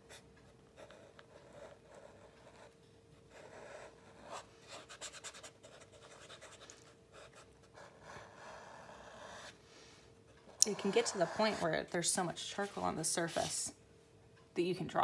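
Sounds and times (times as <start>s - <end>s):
charcoal rubbing on paper: 10.7s - 11.9s, 12.5s - 13.7s.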